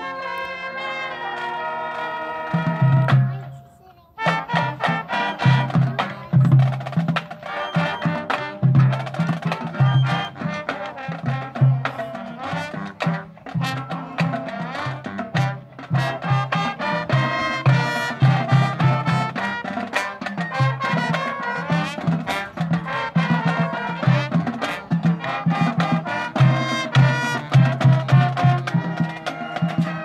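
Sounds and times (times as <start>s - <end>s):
marching band playing: 0.0s - 30.0s.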